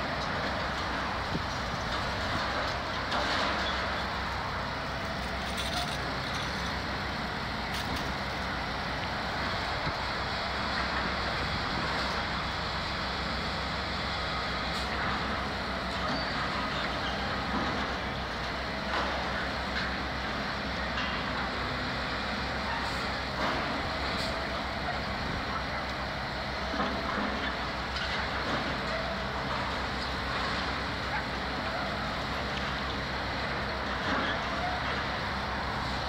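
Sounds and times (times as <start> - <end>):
city traffic rumble: 0.0 - 36.0
diesel construction machinery: 0.0 - 36.0.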